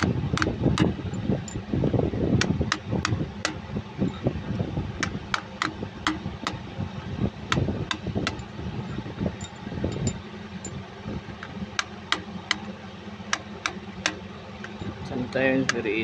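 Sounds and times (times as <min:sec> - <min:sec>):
hammer tapping steel punch: 0:00.0 - 0:01.6, 0:02.4 - 0:03.6, 0:05.0 - 0:06.6, 0:07.5 - 0:08.5
low hum: 0:00.0 - 0:16.0.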